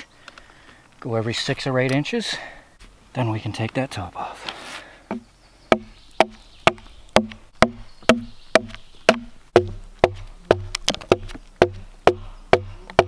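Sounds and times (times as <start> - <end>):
axe chopping into log: 5.1 - 13.0.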